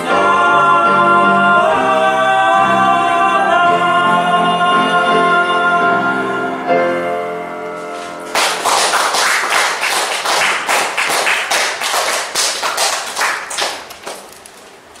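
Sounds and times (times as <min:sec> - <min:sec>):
audience applause: 0:08.3 - 0:14.5.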